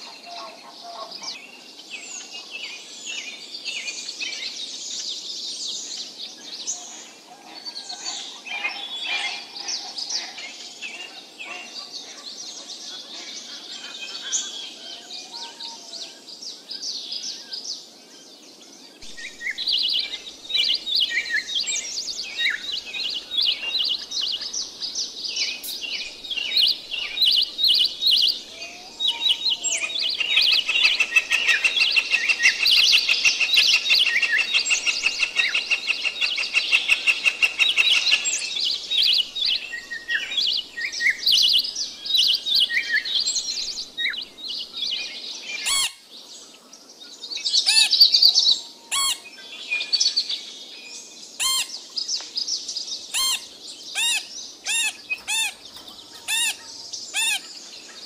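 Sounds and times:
birds chirping: 5.8 - 58.0
fast bird trill: 53.2 - 57.5.

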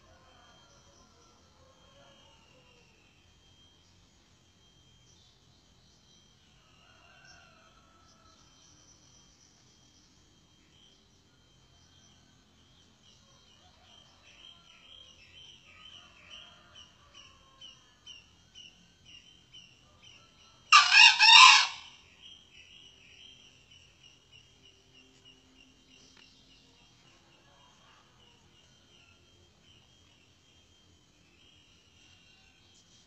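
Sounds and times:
rooster crowing: 0.0 - 2.9, 20.4 - 22.0.

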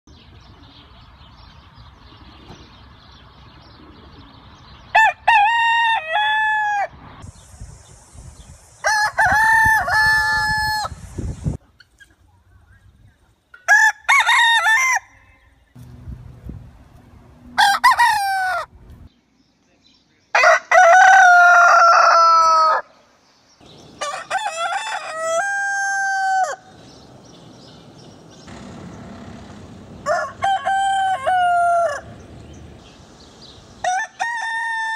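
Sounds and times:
roosters crowing: 4.9 - 7.1, 8.8 - 11.1, 13.6 - 15.6, 17.4 - 18.8, 20.3 - 23.0, 23.6 - 34.9.

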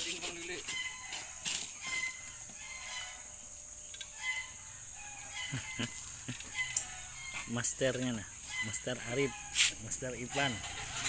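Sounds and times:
chickens clucking: 0.0 - 11.0
steady high-pitched hiss: 0.0 - 11.0
rooster crowing: 0.6 - 3.4, 4.1 - 7.5, 8.4 - 11.0.

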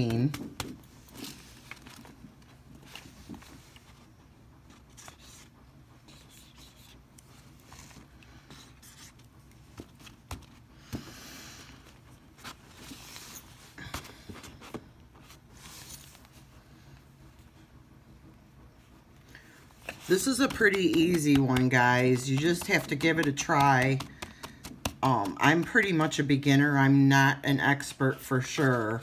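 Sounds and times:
paper rustling and scraping: 0.0 - 4.1, 4.7 - 10.7, 11.8 - 16.5, 19.8 - 24.1, 28.1 - 29.0.

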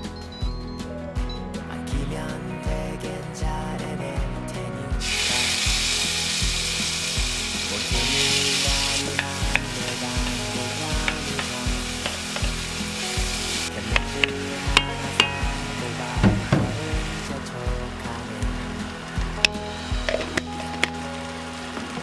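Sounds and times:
background music with steady beat: 0.0 - 22.0
chili paste sizzling in oil: 5.0 - 17.3
stirring clicks: 7.5 - 15.7, 19.1 - 21.1.

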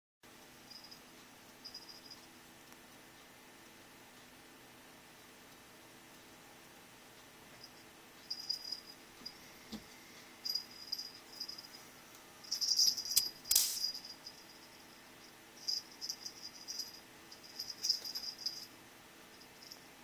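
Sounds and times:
toy jingling: 8.3 - 9.0, 10.4 - 11.8, 12.4 - 15.0, 15.6 - 18.7
sharp scrape or knock: 13.2 - 14.1.

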